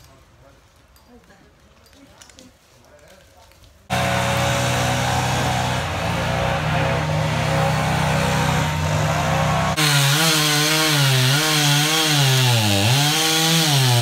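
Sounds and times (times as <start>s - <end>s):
chainsaw cutting: 3.9s - 14.0s.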